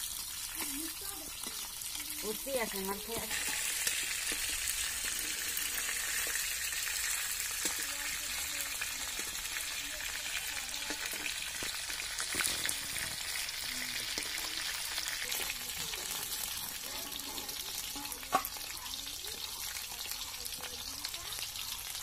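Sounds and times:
fish sizzling in oil: 0:00.0 - 0:22.0
metal spatula scraping pan: 0:16.0 - 0:18.4.

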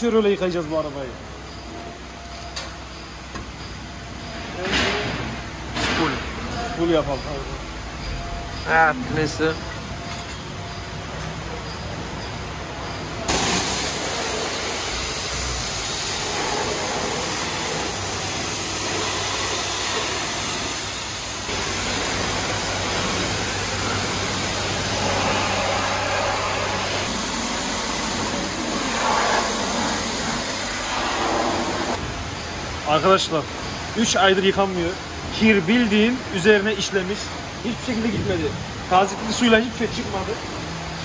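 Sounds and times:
pressure washer spraying water: 0:13.3 - 0:32.0.

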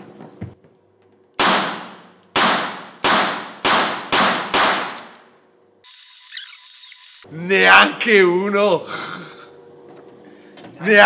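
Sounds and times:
revolver shots ringing indoors: 0:01.3 - 0:05.6.

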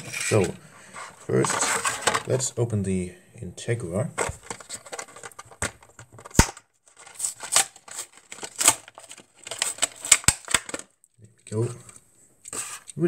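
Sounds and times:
plastic packaging crinkling: 0:04.2 - 0:10.9.

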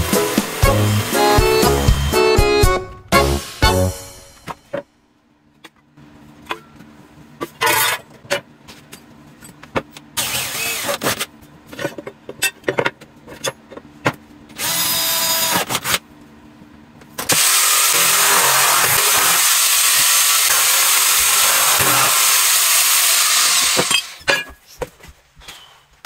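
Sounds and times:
jigsaw cutting sheet metal: 0:00.0 - 0:02.4, 0:10.2 - 0:11.2, 0:17.3 - 0:24.2.

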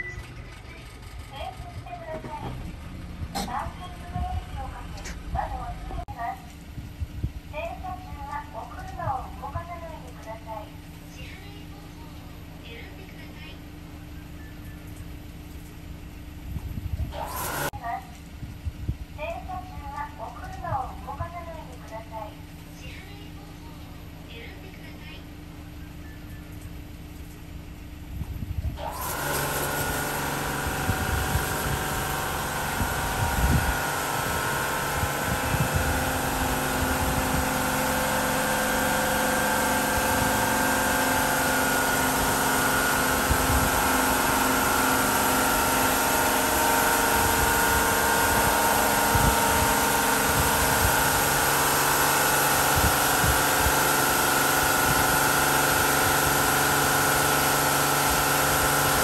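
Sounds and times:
car wash motors humming: 0:00.0 - 0:59.0
spinning brushes and water spray: 0:17.2 - 0:17.7, 0:28.8 - 0:59.0.

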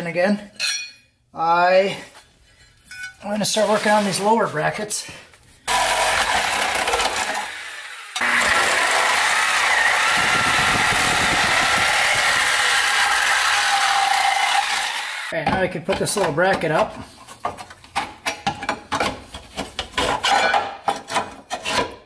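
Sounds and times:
power saw cutting sheet metal: 0:05.7 - 0:15.4.

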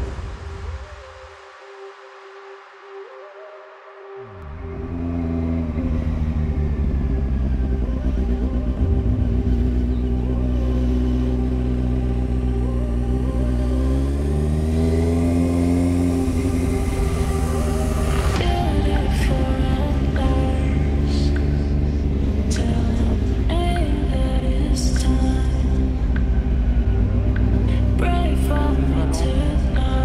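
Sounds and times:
vehicle engine running: 0:04.4 - 0:30.0.

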